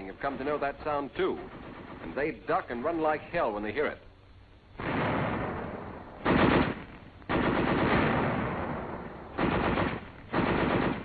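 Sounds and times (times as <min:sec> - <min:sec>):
muffled machine-gun fire: 0:04.8 - 0:11.0.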